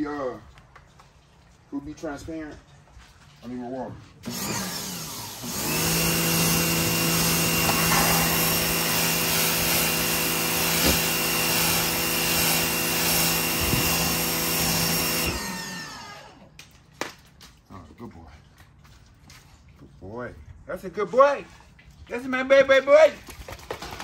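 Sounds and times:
pressure washer motor humming: 4.2 - 16.4
water jet hissing: 5.6 - 15.4.

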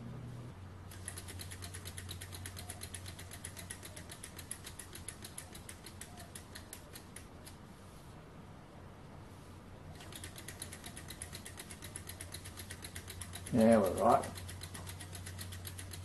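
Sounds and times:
model engine clicking rapidly: 0.9 - 7.2, 10.0 - 16.0.

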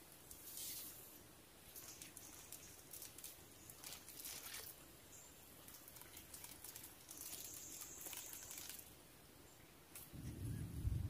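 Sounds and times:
small water splashes and drips: 1.7 - 9.0.

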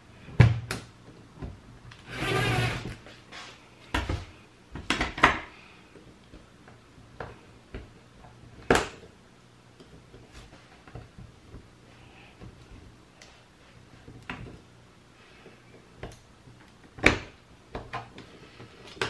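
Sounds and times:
small electric drill whirring: 2.0 - 3.0.

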